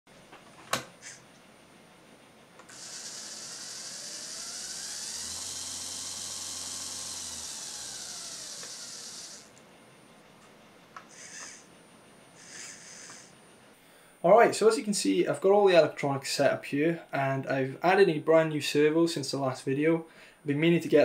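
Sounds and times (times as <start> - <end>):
small electric motors whining: 2.6 - 9.6, 11.0 - 11.7, 12.4 - 13.4.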